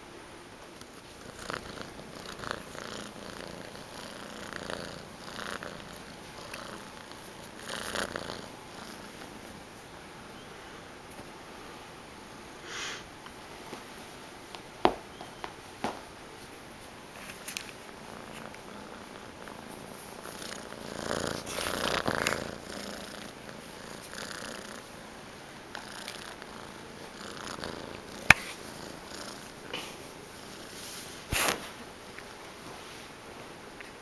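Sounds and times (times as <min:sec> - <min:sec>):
kitten purring: 0:00.8 - 0:09.6, 0:17.9 - 0:31.5.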